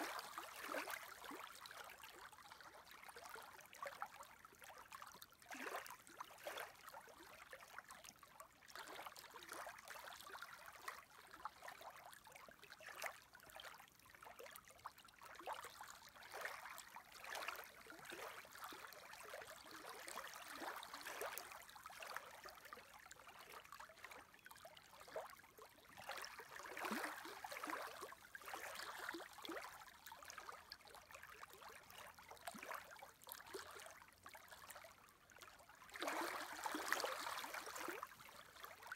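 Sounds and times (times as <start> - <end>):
small waves lapping: 35.9 - 38.9.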